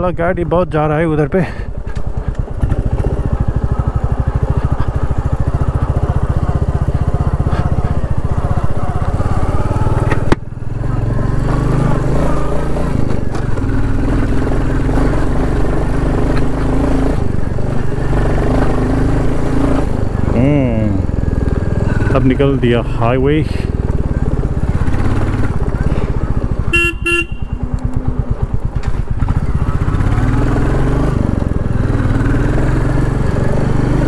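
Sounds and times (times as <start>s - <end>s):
motorcycle engine running: 0.0s - 34.0s.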